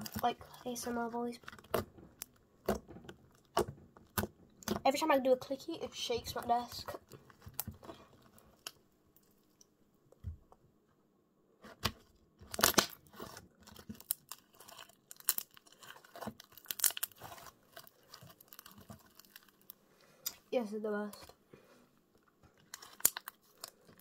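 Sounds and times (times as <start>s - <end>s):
slime clicks and crackles: 11.8s - 20.4s, 22.6s - 24.0s.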